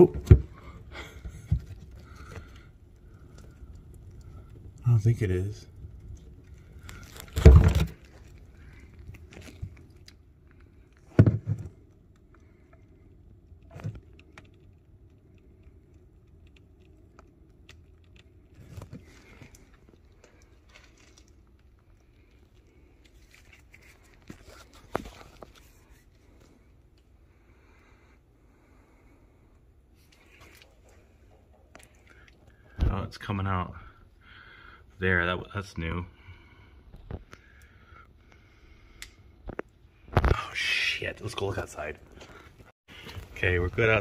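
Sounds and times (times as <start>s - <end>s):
curing foam cracks and pops: 0.0s - 26.6s
faint crackling: 0.0s - 32.9s.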